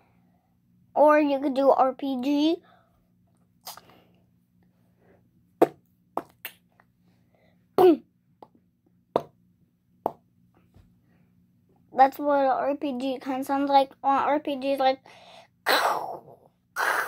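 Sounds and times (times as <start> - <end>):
child making explosion noises: 15.7 - 17.0.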